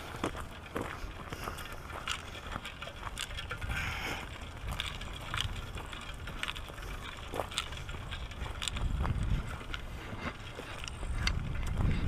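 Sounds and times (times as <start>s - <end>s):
footsteps on gravel and leaves: 0.0s - 12.0s
wind on microphone: 3.4s - 12.0s.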